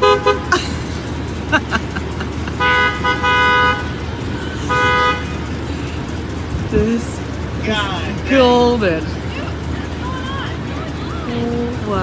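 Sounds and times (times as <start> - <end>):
car horn honking: 0.0 - 0.6, 2.5 - 5.6
street noise: 0.0 - 12.0.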